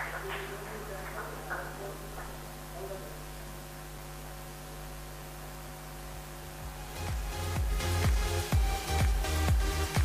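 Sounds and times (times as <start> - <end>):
music with kick-drum beat: 6.4 - 10.0.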